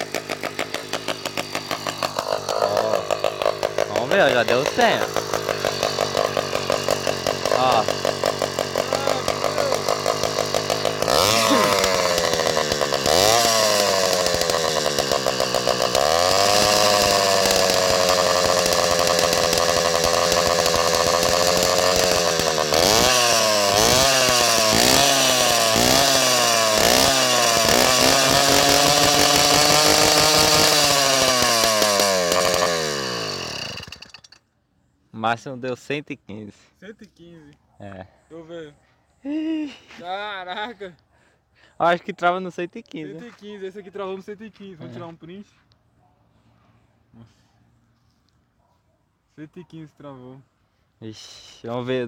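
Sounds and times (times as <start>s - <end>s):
two-stroke engine revving: 0.0s - 34.4s.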